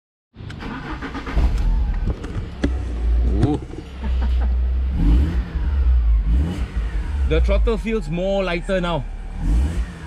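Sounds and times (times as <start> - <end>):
car engine low drone: 0.4 - 10.0.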